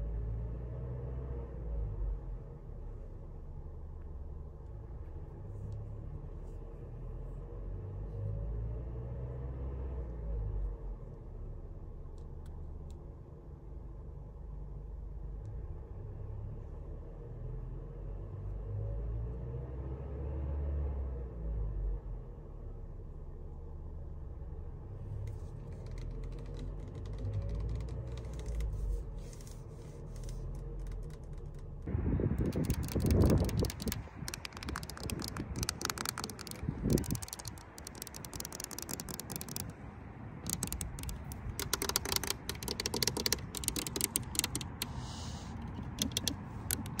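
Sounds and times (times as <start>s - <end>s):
car engine idling: 23.8s - 47.0s.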